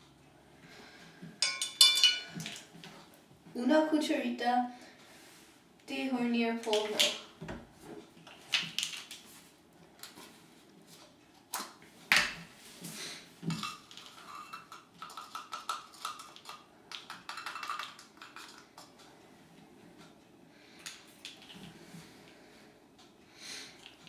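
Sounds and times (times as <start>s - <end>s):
light scraping and clinking: 13.5s - 14.9s.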